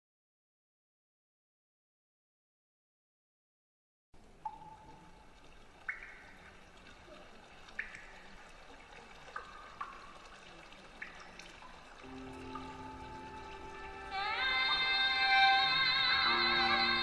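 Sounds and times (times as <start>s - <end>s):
water drop plinks: 4.4s - 8.5s, 9.3s - 14.9s.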